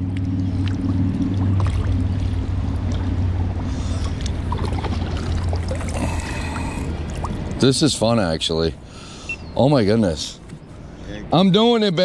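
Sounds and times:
water sloshing from paddle: 0:00.0 - 0:07.6
steady low hum: 0:00.0 - 0:11.4.

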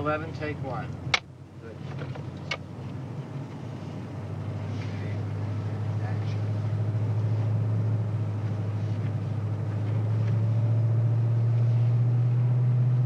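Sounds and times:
car engine drone: 0:00.0 - 0:13.0
road noise: 0:00.0 - 0:13.0.

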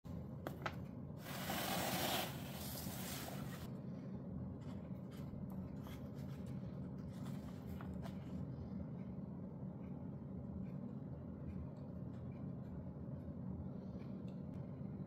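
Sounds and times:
steady low hum: 0:03.1 - 0:15.0.

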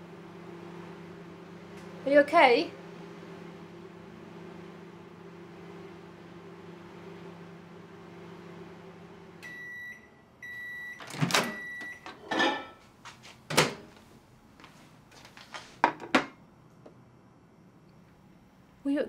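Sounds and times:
microwave oven humming: 0:00.0 - 0:19.0
microwave beeps: 0:09.4 - 0:12.3
knocks and clatters of oven door: 0:13.5 - 0:13.9.

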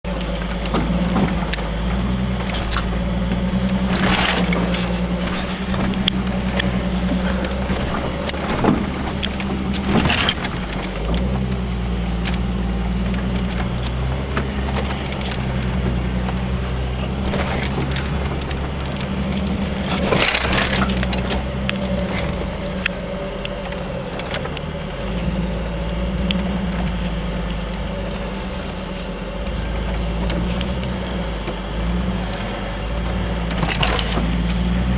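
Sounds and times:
car engine pulling at low speed: 0:00.0 - 0:34.9
truck knocking over rocks: 0:00.1 - 0:25.4, 0:26.3 - 0:34.9
light rattles and jangling: 0:17.3 - 0:21.4, 0:33.5 - 0:34.9.

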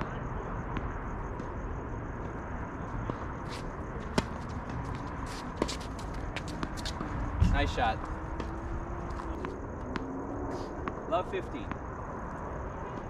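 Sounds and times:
outdoor background noise: 0:00.0 - 0:13.0
shoe scuffs and footsteps on court: 0:03.0 - 0:11.0.

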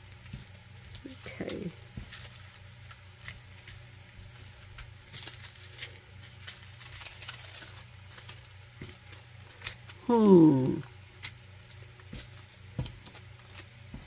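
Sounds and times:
plastic bags clicking and crinkling: 0:00.0 - 0:10.4, 0:11.2 - 0:14.0.

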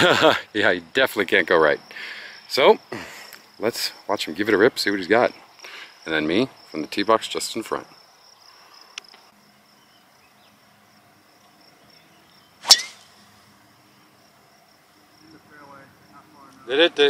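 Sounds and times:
golf club striking ball: 0:12.6 - 0:13.2.

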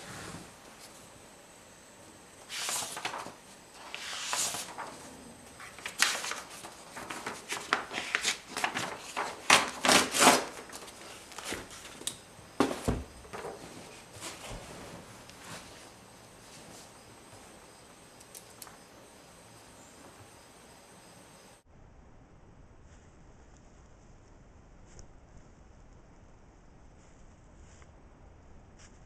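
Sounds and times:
paper rustling and crinkling: 0:02.4 - 0:16.0
dull thump: 0:12.6 - 0:13.3.

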